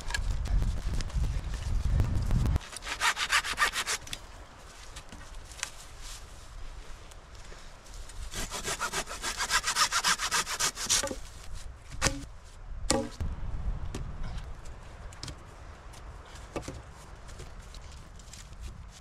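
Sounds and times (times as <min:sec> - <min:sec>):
hand saw cutting wood: 0:02.6 - 0:04.1, 0:08.3 - 0:11.2.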